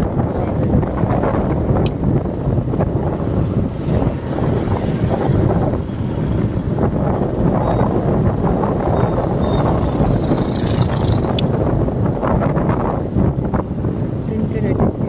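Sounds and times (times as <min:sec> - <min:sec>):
road noise: 0:00.0 - 0:15.0
wind buffeting microphone: 0:00.0 - 0:15.0.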